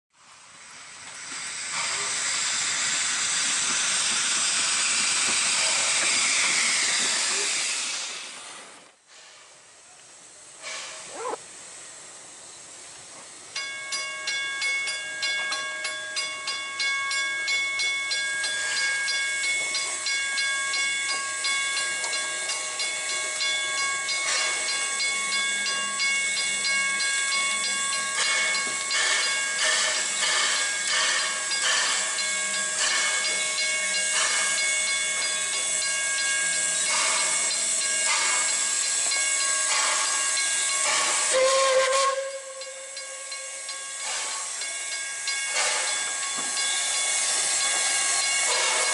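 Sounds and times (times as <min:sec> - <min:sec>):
steam locomotive exhaust beat: 0:00.1 - 0:48.9
steam hissing: 0:00.2 - 0:48.9
high ringing tones: 0:13.6 - 0:48.9.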